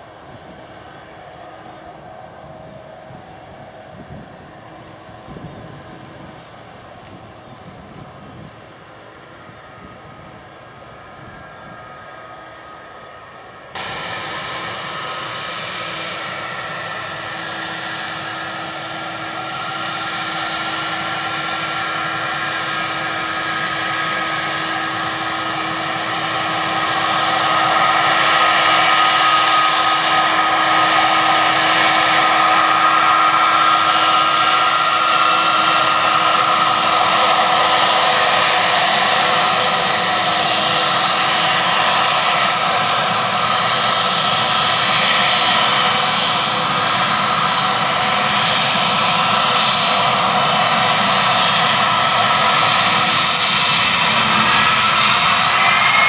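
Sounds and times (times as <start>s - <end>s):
jet engine whine: 0.0s - 56.0s
rushing noise: 13.8s - 56.0s.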